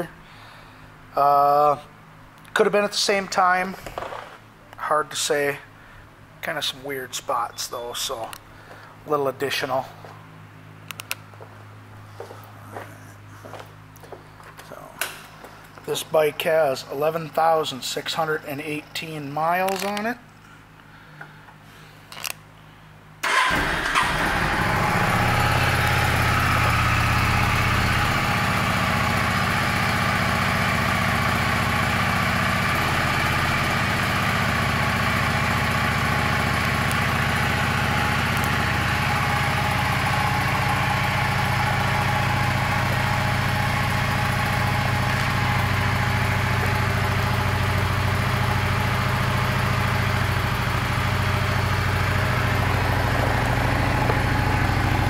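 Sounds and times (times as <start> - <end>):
motorcycle engine starting and idling: 23.2 - 55.0.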